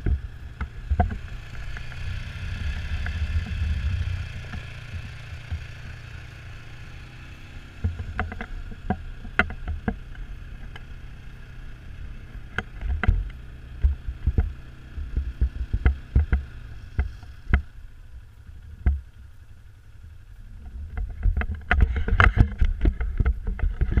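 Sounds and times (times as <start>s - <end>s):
wind rumbling on microphone: 0.0s - 19.5s, 20.3s - 24.0s
knocks and clicks from gear: 7.8s - 10.9s, 12.4s - 17.7s, 20.6s - 24.0s.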